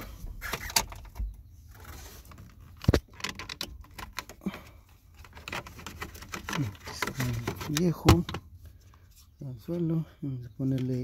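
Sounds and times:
plastic clicks and rattles: 0.4s - 4.4s, 5.2s - 8.4s.

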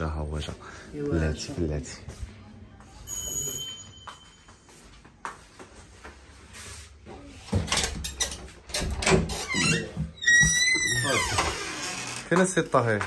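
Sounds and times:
door opening knocks and clatter: 7.5s - 11.7s.

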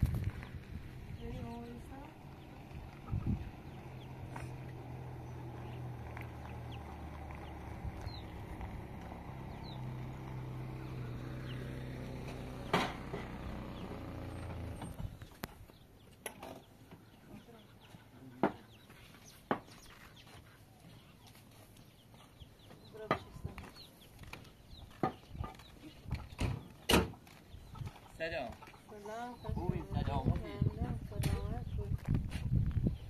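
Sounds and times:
sharp knocks: 12.7s - 13.4s.

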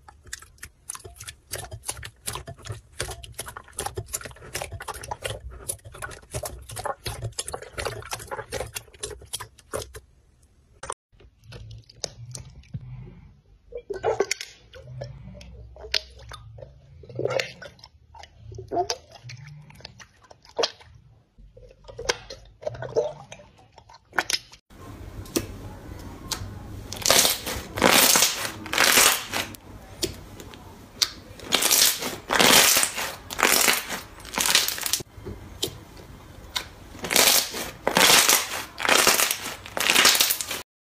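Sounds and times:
hands squishing slime: 0.0s - 10.1s, 26.3s - 35.8s, 36.4s - 40.6s
slime crackling: 26.3s - 35.1s, 36.5s - 40.6s.

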